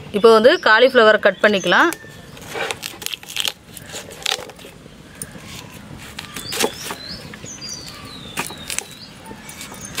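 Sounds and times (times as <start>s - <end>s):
knife cutting crisp stalks: 2.4s - 4.7s.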